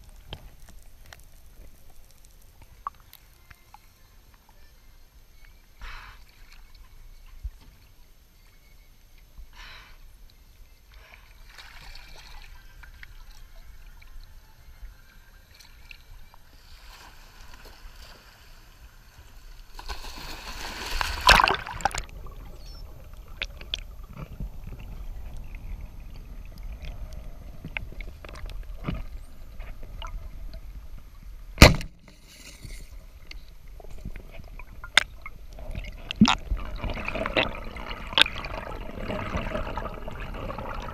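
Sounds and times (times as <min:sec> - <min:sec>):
sea water sloshing and splashing: 0:16.6 - 0:27.0, 0:34.2 - 0:40.9.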